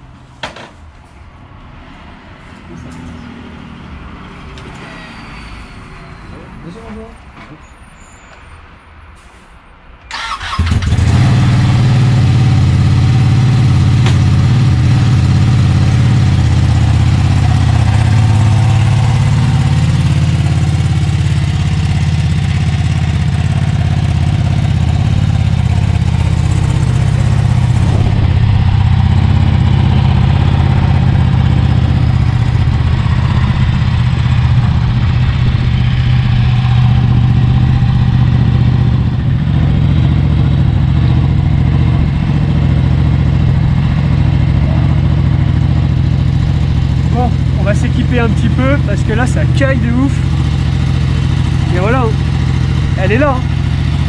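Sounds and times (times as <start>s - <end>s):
motorcycle engine idling: 10.2s - 54.0s.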